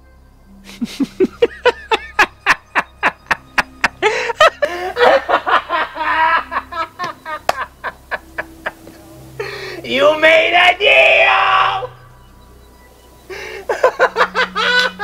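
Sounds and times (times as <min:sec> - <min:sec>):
man cackling maniacally: 0:00.7 - 0:09.9, 0:13.3 - 0:15.0.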